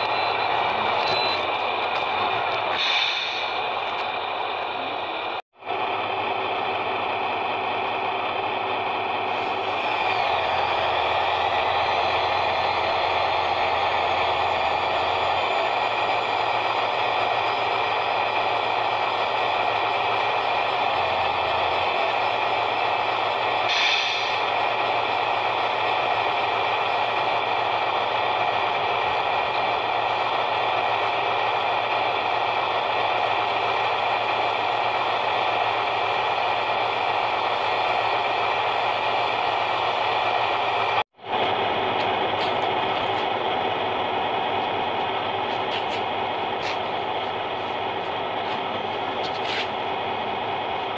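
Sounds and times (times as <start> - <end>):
brief high hiss: 2.8 - 3.5.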